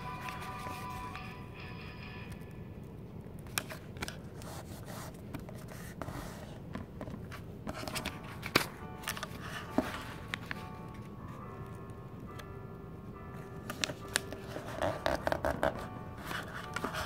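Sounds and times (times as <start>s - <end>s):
paper rustling: 3.5s - 11.1s, 13.7s - 17.0s
sharp paper clicks and taps: 7.0s - 10.6s.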